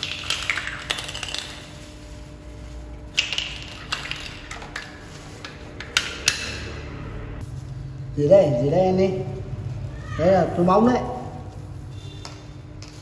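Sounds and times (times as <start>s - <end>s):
plastic bag crinkling: 0.0s - 5.7s.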